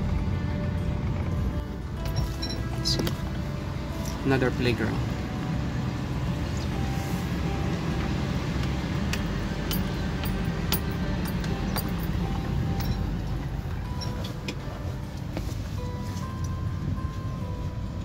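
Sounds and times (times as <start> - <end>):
background music: 0.0 - 18.0
car cabin road rumble: 0.0 - 18.0
small clinks and rattles: 2.0 - 3.1, 9.1 - 13.4.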